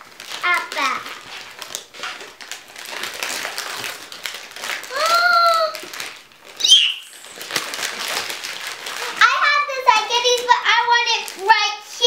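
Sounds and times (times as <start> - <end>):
wrapping paper rustling: 0.0 - 12.0
child crying out in excitement: 6.6 - 7.2
very high squeal: 6.6 - 7.4.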